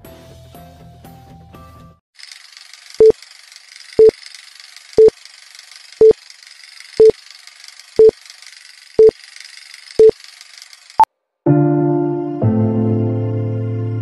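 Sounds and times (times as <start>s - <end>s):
short identical beeps: 9.0s - 9.2s, 10.0s - 10.2s.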